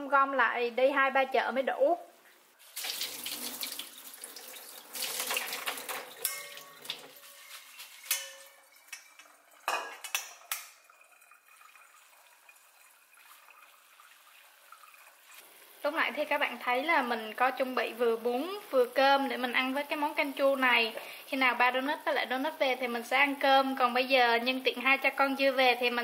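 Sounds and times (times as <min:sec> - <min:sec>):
water splashing through strainer: 0:02.6 - 0:15.4
strainer knocks and clinks: 0:05.4 - 0:08.6.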